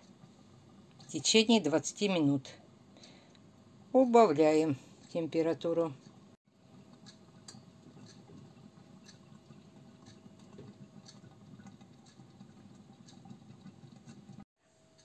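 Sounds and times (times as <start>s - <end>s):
sauce simmering with soft pops: 6.0s - 14.5s.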